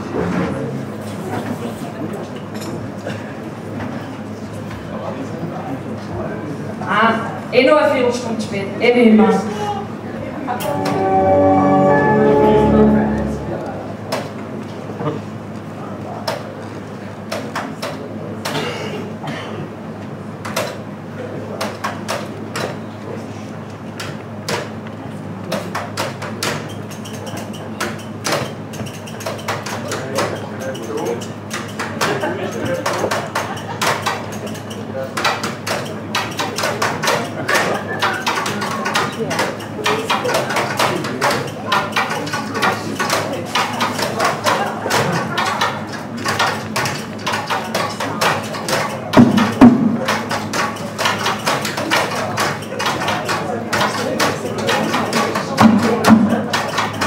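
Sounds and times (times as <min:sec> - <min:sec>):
knocks and clacks of props: 0:25.4 - 0:57.0.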